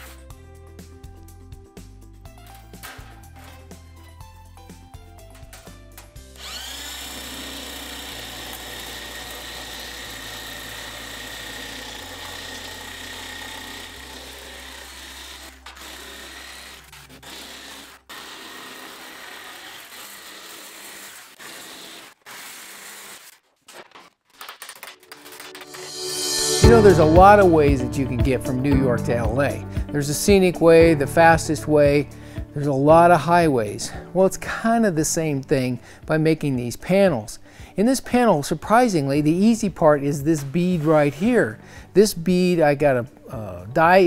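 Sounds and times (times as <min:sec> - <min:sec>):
electric nibbler cutting sheet steel: 0:05.4 - 0:23.4.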